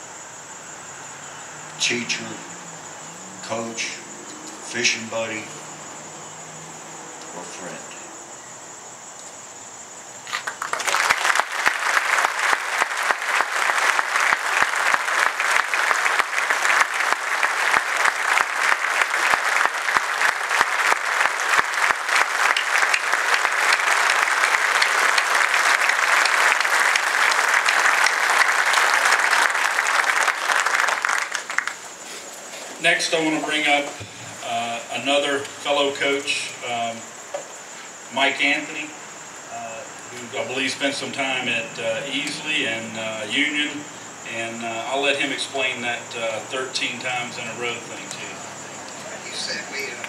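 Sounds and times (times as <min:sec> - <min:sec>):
large audience clapping: 0:10.2 - 0:32.0.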